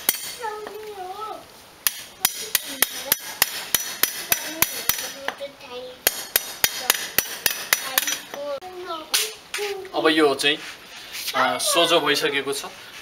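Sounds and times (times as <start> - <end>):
hammer striking steel rod: 0.0 - 0.4, 1.8 - 5.4, 6.0 - 8.3.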